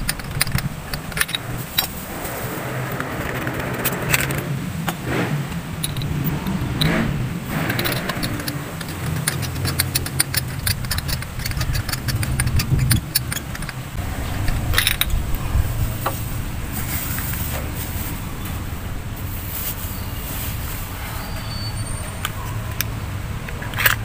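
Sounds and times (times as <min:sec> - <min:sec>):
metal socket clicking and rattling: 0:00.0 - 0:02.0, 0:05.8 - 0:15.2, 0:23.5 - 0:24.0.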